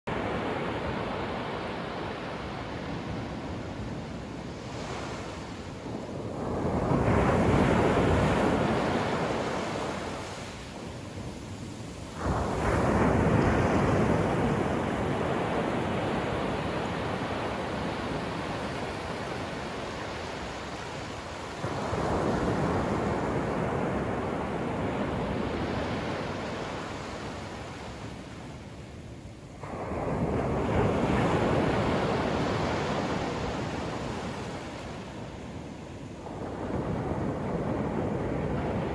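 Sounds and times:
ocean waves breaking: 0:00.1 - 0:38.9
surf wash: 0:00.1 - 0:38.9.

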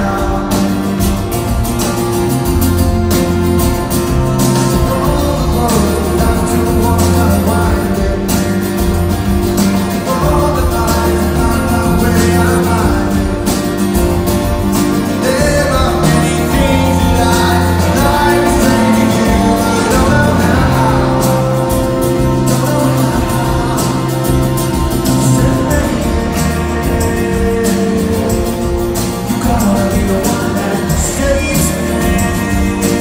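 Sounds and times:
man singing: 0:00.0 - 0:02.3, 0:04.3 - 0:33.0
live rock band playing: 0:00.0 - 0:33.0
strummed acoustic guitar: 0:00.0 - 0:33.0.

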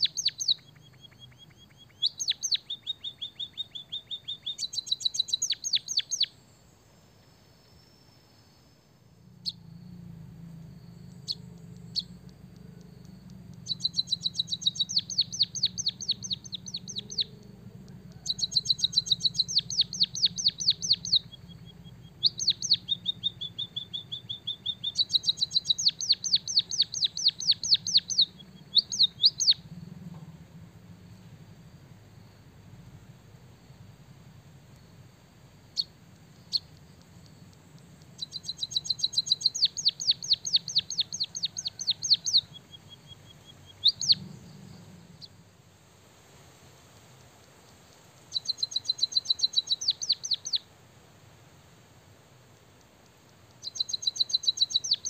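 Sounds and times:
bird whistle: 0:00.0 - 0:06.4, 0:10.8 - 0:17.4, 0:18.1 - 0:29.6, 0:38.2 - 0:44.2, 0:48.3 - 0:50.6, 0:53.6 - 0:55.0
bird chirping trills: 0:00.0 - 0:45.6, 0:48.3 - 0:50.7, 0:53.1 - 0:55.0.

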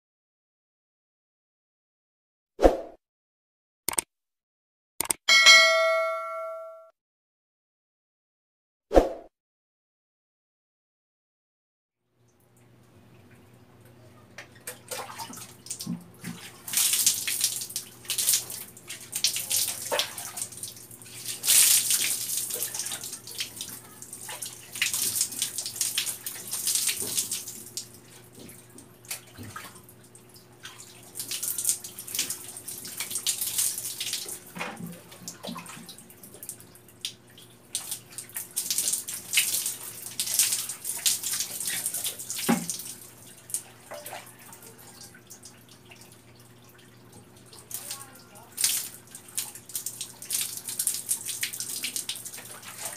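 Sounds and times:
water poured and splashing: 0:14.5 - 0:52.9.

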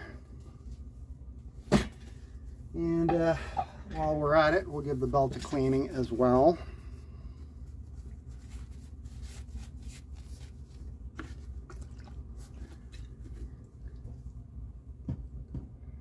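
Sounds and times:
low steady hum: 0:00.0 - 0:16.0
paper towel rustling: 0:07.6 - 0:13.6.

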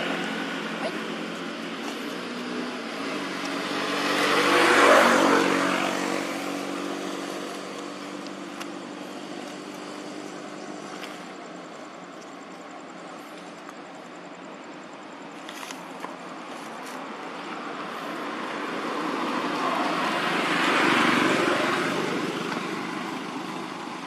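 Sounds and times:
vehicle passing by: 0:00.0 - 0:11.4, 0:17.4 - 0:24.0.

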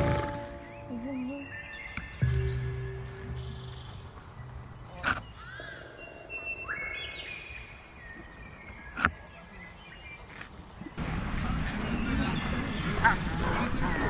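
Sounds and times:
birds chirping and calling: 0:00.0 - 0:14.0.

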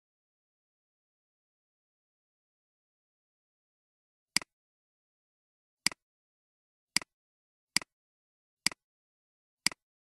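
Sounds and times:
computer mouse clicks: 0:09.6 - 0:09.8.

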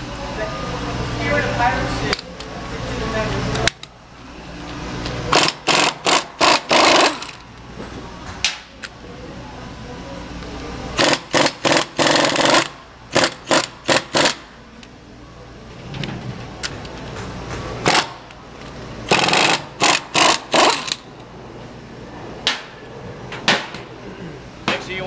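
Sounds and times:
pneumatic impact wrench bursts: 0:05.3 - 0:07.5, 0:11.0 - 0:14.5, 0:17.8 - 0:18.3, 0:19.1 - 0:21.1.

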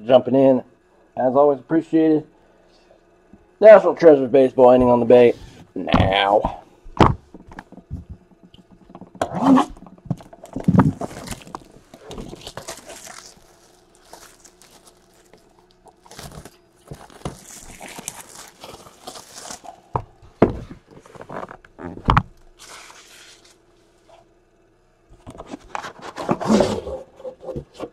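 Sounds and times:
plastic wrapping crinkling: 0:10.1 - 0:20.1.

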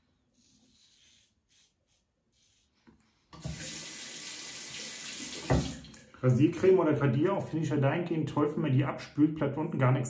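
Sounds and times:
tap water running into sink: 0:03.4 - 0:06.1.

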